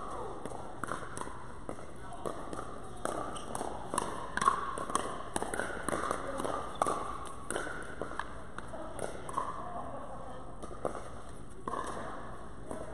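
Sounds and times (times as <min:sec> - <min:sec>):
paddles striking ball: 0:00.2 - 0:09.4.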